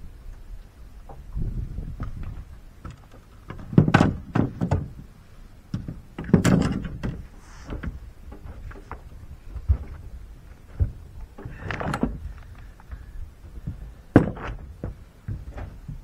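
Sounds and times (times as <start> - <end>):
knocks and thuds on boat deck: 2.8 - 5.0, 5.7 - 10.1, 13.5 - 16.0.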